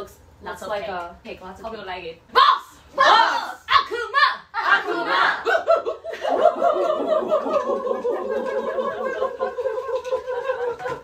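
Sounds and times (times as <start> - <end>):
group of voices chanting: 2.9 - 5.7
people laughing: 4.9 - 11.0.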